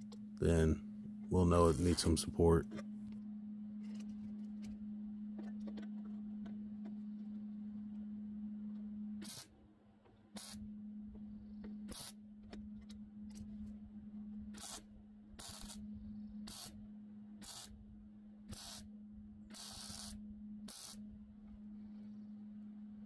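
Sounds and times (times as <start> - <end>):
steady low hum: 0.0 - 23.0
welder crackling bursts: 19.5 - 21.0.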